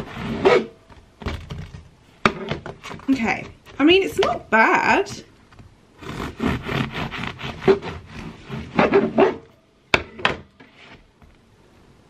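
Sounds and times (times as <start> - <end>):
knife sawing through bread crust: 6.0 - 9.0.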